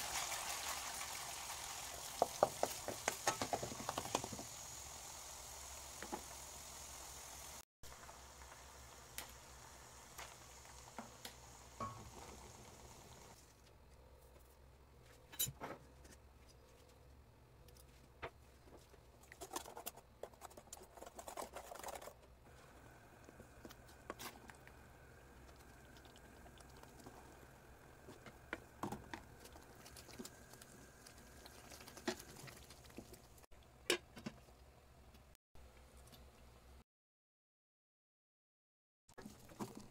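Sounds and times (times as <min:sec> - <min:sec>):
spoon stirring thick paste: 0:19.2 - 0:22.2.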